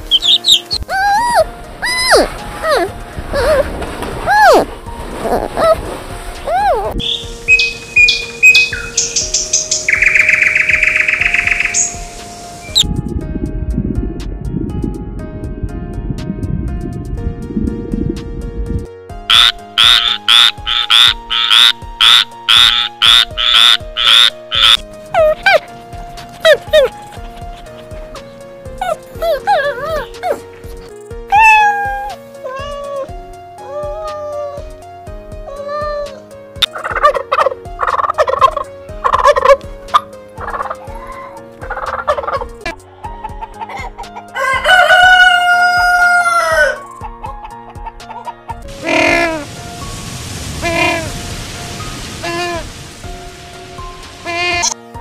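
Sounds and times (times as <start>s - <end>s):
background music with held notes: 0.0s - 55.0s
frog croaking: 19.3s - 24.8s, 54.2s - 54.8s
turkeys gobbling: 19.3s - 24.8s, 36.6s - 40.9s, 41.6s - 42.5s
rooster crowing: 44.3s - 46.9s.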